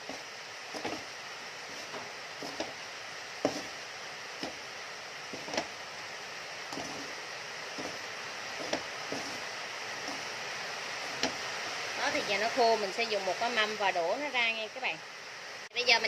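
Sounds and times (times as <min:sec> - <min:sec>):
wooden spatula scraping metal wok: 0:00.0 - 0:05.9, 0:06.6 - 0:11.5
heavy rain hissing: 0:00.0 - 0:16.0.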